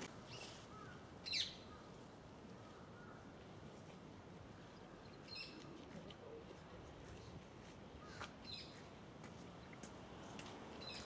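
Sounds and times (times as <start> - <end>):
faint background noise: 0.0 - 11.0.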